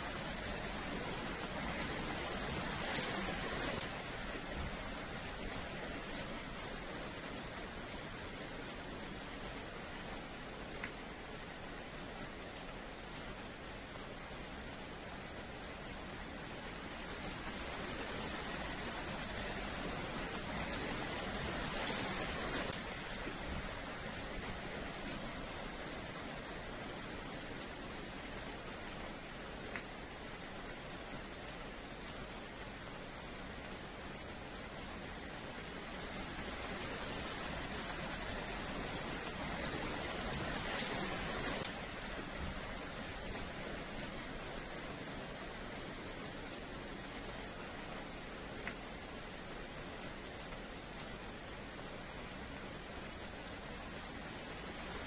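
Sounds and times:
rain on wet paving: 0.0 - 55.0.

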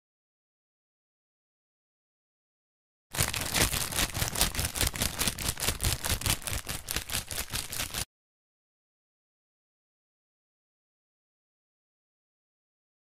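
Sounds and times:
dense crackle of rapid clicks: 3.2 - 8.0.

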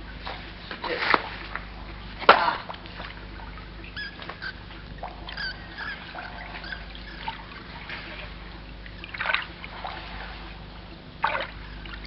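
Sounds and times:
water dripping and trickling: 0.0 - 12.0.

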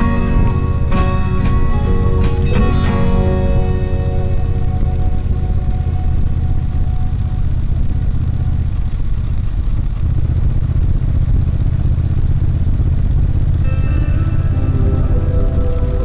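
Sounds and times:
music: 0.0 - 8.6, 13.6 - 16.0
motorcycle engine rumbling: 0.0 - 16.0.

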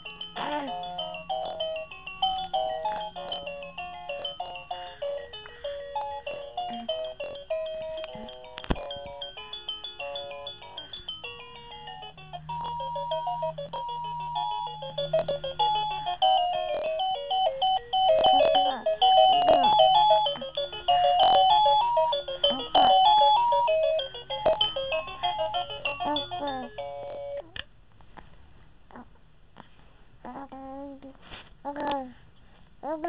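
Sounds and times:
baby cooing: 0.4 - 1.8, 6.3 - 9.0, 16.5 - 17.1, 18.1 - 20.5, 22.4 - 23.2
electronic beeping melody: 11.6 - 26.2.

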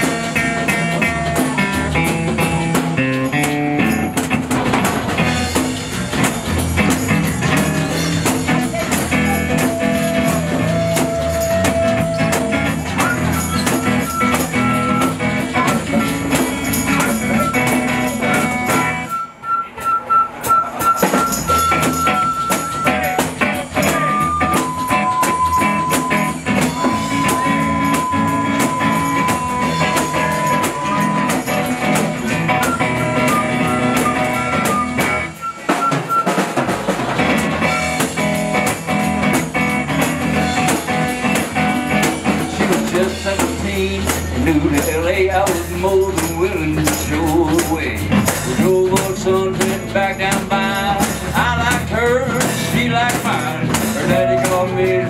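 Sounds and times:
strummed acoustic guitar: 0.0 - 19.2, 20.5 - 55.0
congas: 0.0 - 55.0
flute solo: 9.3 - 16.3, 19.0 - 23.2, 23.8 - 31.5, 32.5 - 36.6.

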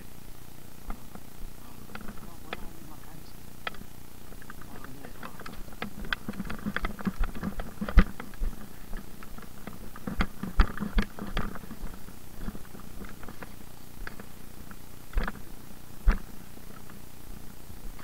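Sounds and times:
objects clicking and rattling: 3.7 - 14.3.

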